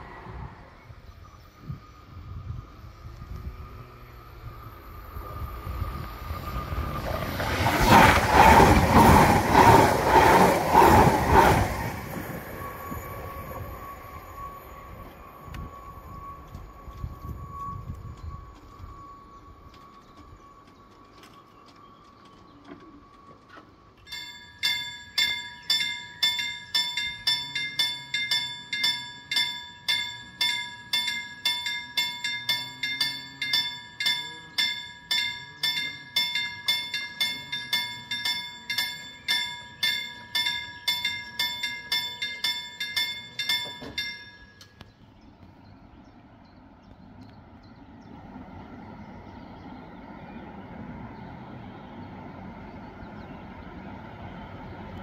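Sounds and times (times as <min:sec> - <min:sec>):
faint train rumble: 0:00.0 - 0:55.0
level crossing warning bell: 0:12.5 - 0:44.8.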